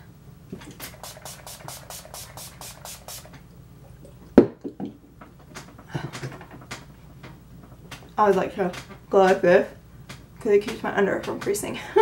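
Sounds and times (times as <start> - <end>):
spray bottle spritzing: 0.7 - 3.4.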